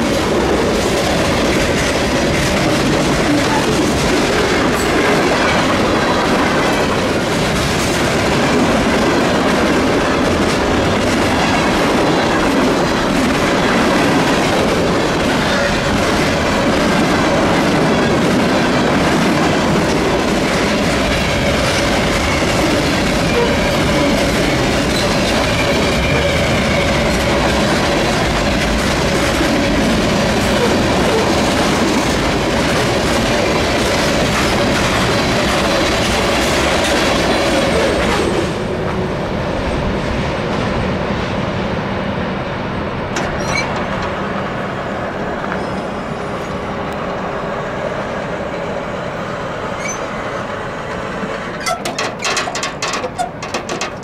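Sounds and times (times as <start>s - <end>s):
wheels clickety-clack on rails: 0.0s - 41.4s, 42.9s - 54.0s
freight train rumbling past: 0.0s - 54.0s
wheel flanges squealing: 43.2s - 43.9s, 49.8s - 50.2s.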